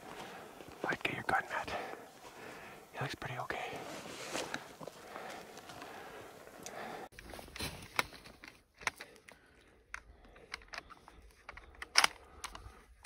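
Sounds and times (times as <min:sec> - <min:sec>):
clothing and gear rustling: 0:01.9 - 0:02.8, 0:03.6 - 0:09.2.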